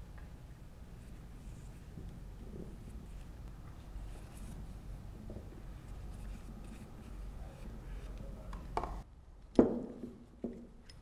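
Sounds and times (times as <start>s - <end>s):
small tool rubbing and dabbing: 1.0s - 8.5s.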